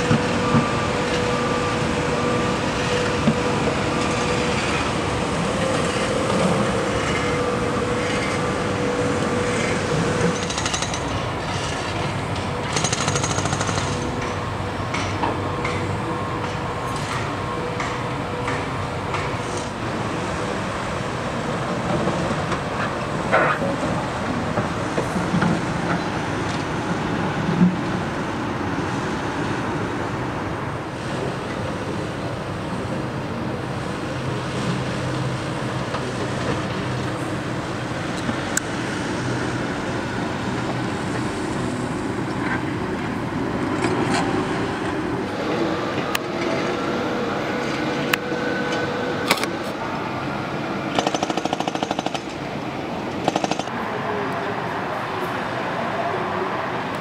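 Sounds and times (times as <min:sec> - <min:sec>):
diesel machinery running: 0:00.0 - 0:57.0.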